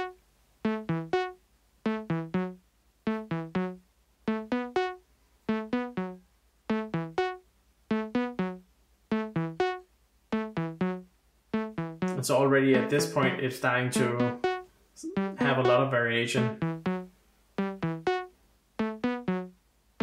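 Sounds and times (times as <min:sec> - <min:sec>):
synthesizer plucked melody: 0:00.0 - 0:19.6.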